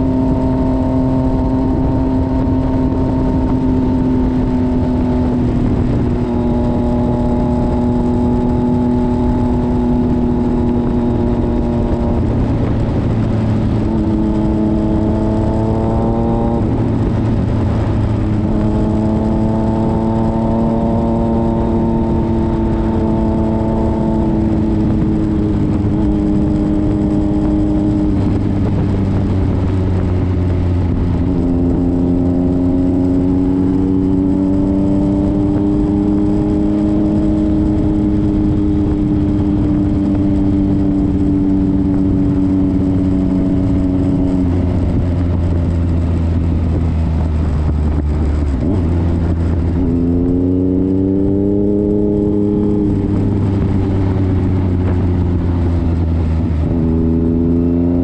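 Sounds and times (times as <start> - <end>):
motorcycle engine running: 0.0 - 58.0
road noise: 0.0 - 58.0
rushing wind: 0.0 - 58.0.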